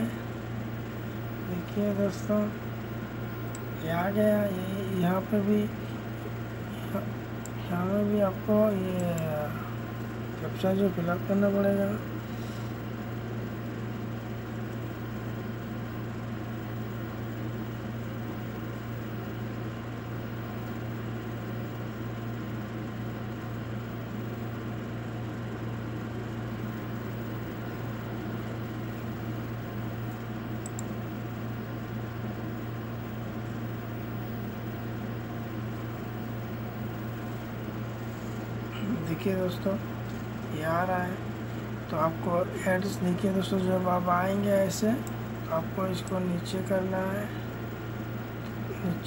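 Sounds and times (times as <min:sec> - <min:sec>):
constant hiss: 0:35.6 - 0:49.0.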